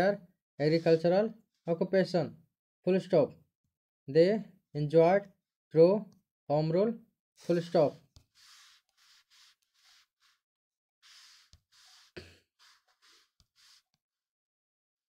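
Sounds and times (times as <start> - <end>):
faint breathing puffs: 0.6 - 1.3, 7.4 - 10.4, 11.0 - 14.0.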